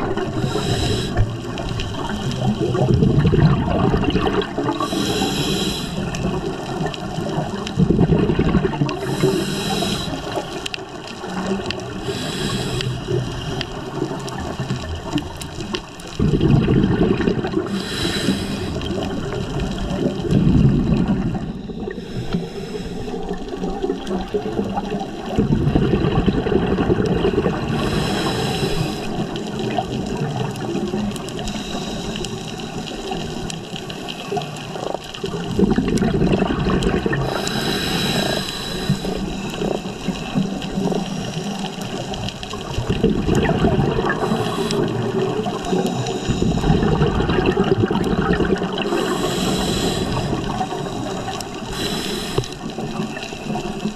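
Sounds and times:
exhaled bubbles rumbling: 0:00.0 - 0:53.9
regulator inhalation hiss: 0:00.4 - 0:01.4, 0:04.9 - 0:06.2, 0:09.0 - 0:10.5, 0:12.0 - 0:13.2, 0:17.7 - 0:18.9, 0:21.7 - 0:23.4, 0:27.8 - 0:29.5, 0:31.5 - 0:34.3, 0:37.2 - 0:40.3, 0:44.2 - 0:46.8, 0:48.8 - 0:53.7.

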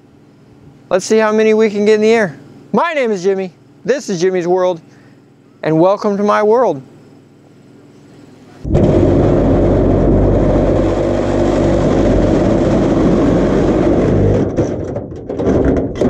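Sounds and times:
engine running: 0:07.2 - 0:14.8
engine knocks: 0:08.6 - 0:16.0.

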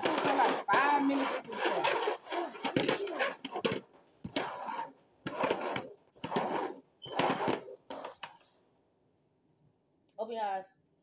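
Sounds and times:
plastic bowls scraping on wood: 0:00.0 - 0:08.5.

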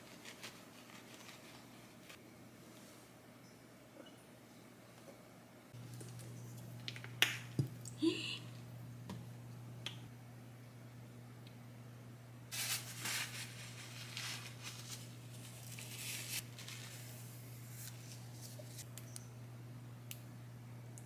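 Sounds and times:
tissue rustling: 0:00.0 - 0:02.2, 0:12.5 - 0:18.6.

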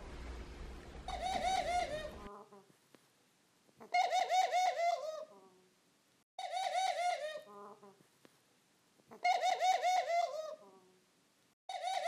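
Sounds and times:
dove laughing call: 0:01.0 - 0:02.4, 0:03.8 - 0:05.4, 0:06.4 - 0:07.8, 0:09.1 - 0:10.7, 0:11.7 - 0:12.0.

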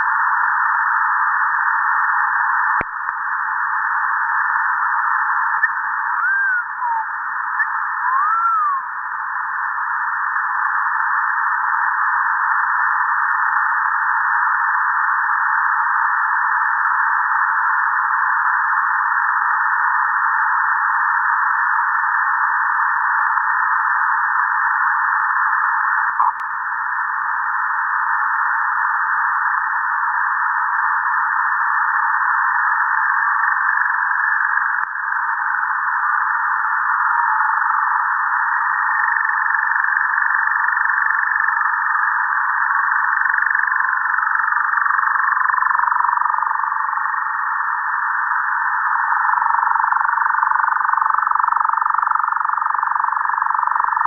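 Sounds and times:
radio static hiss: 0:00.0 - 0:54.0
rising and falling whistles: 0:06.2 - 0:07.0, 0:07.6 - 0:08.9.

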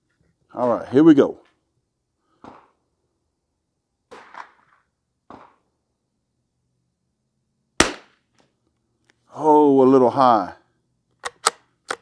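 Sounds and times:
rifle shot: 0:02.4 - 0:02.8, 0:04.1 - 0:04.7, 0:05.3 - 0:05.7, 0:07.8 - 0:08.2.

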